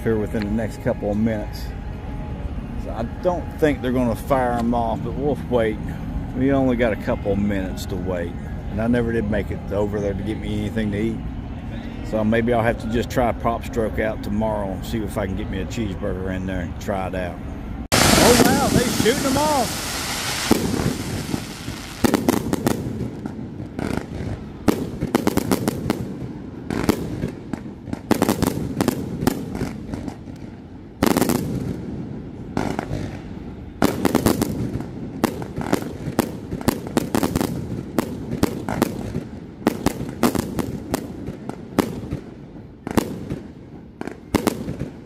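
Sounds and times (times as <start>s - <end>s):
fireworks bangs and booms: 17.9s - 45.0s
fireworks crackling: 17.9s - 45.0s.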